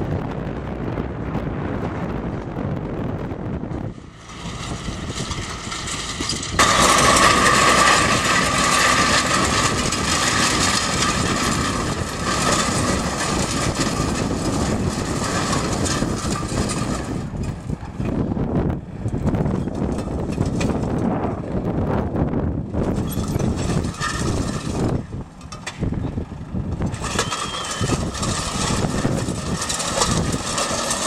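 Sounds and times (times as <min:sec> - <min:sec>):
tractor engine running: 0:00.0 - 0:31.0
harrow discs clattering and grinding: 0:03.7 - 0:21.7, 0:22.6 - 0:31.0.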